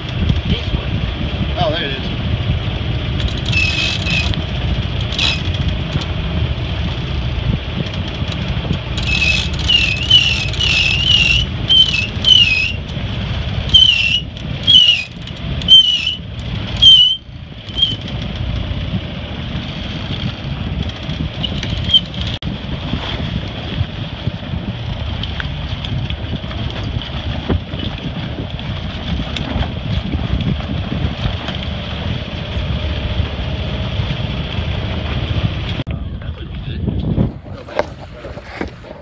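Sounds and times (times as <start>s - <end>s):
low wind noise: 0.0s - 39.0s
high squeaks from lines and winch: 3.2s - 4.4s, 5.0s - 5.6s, 9.0s - 12.9s, 13.7s - 16.2s, 16.8s - 18.1s, 21.4s - 22.3s.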